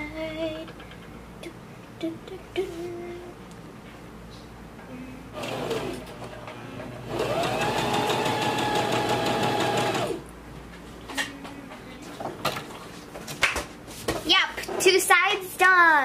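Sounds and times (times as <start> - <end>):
sewing machine stitching: 5.4 - 6.4, 7.1 - 10.2.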